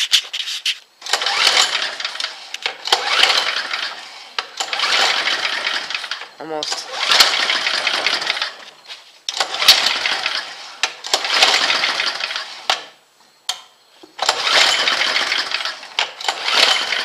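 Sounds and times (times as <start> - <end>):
small engine cranking: 1.0 - 8.6, 9.3 - 12.9, 14.2 - 17.0.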